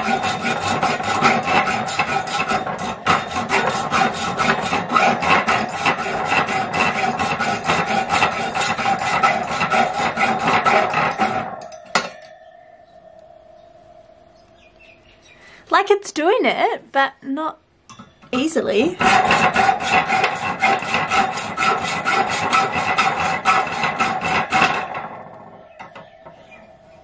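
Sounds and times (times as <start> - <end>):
hacksaw cutting steel wire: 0.0 - 12.4, 18.4 - 25.9.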